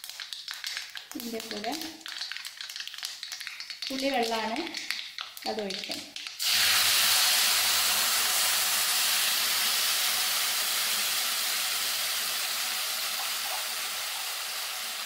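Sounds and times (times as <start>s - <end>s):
liquid sizzling in hot oil: 0.0s - 15.0s.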